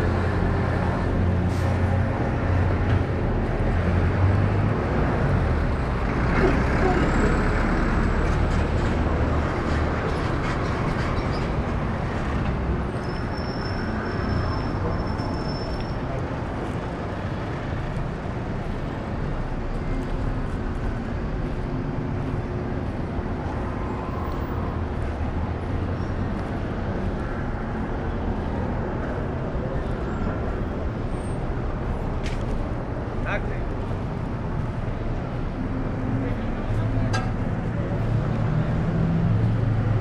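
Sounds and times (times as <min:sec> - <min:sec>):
road traffic rumble: 0:00.0 - 0:40.0.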